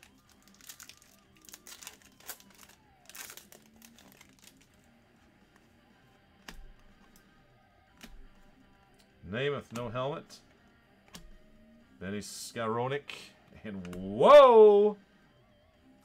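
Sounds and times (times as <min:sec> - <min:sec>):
trading cards crinkling and scuffing: 0:00.0 - 0:05.8
faint background music: 0:00.0 - 0:16.0.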